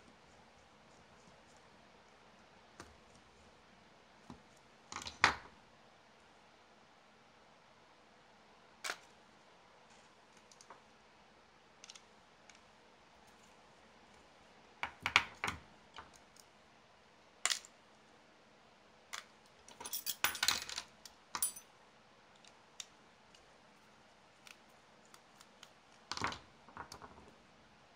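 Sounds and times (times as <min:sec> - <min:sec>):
small parts clicking and clattering: 0:19.2 - 0:21.6.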